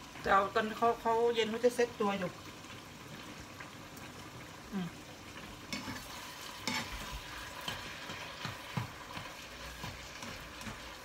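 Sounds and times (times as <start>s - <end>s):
meat sizzling in a frying pan: 0.0s - 11.0s
spatula scraping and tapping pan: 5.7s - 11.0s.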